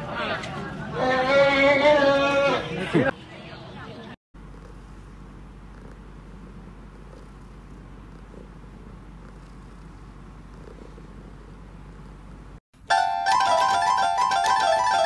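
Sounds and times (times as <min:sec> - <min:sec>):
cat purring: 0:04.4 - 0:12.6
plucked melody: 0:12.9 - 0:15.0.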